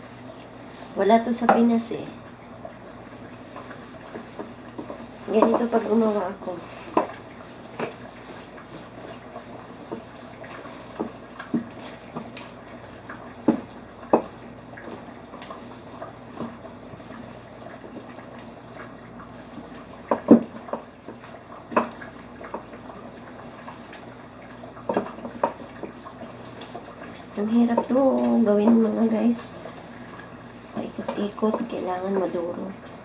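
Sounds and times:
stick churning thick dough: 3.4s - 17.3s
wood knocking against pot: 4.4s - 5.9s, 6.9s - 8.0s, 13.4s - 15.0s, 20.0s - 20.9s, 21.7s - 22.6s.

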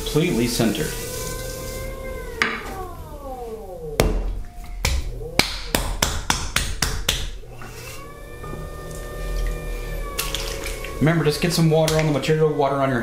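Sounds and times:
pottery wheel motor whine: 0.0s - 13.0s
wet clay slapping: 4.8s - 7.4s.

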